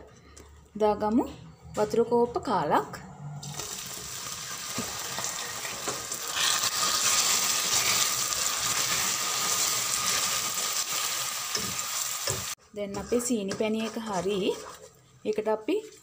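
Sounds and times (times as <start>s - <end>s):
syrup sizzling and hissing: 3.4s - 12.6s
wooden spoon stirring: 12.2s - 16.0s.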